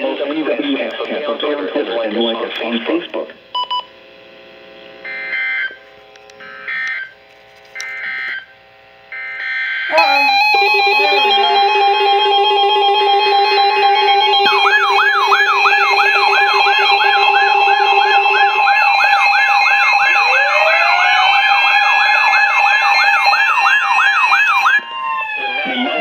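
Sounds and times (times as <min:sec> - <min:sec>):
steady beeping alarms: 0:05.0 - 0:05.8, 0:06.4 - 0:07.2, 0:07.8 - 0:08.5, 0:09.1 - 0:26.0
warbling alarm tone: 0:09.1 - 0:26.0
rising whoop alarm: 0:09.9 - 0:26.0.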